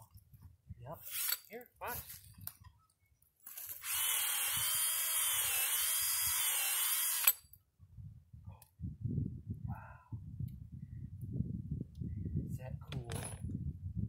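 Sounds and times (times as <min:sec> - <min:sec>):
cordless drill boring into wood: 0:03.8 - 0:07.4.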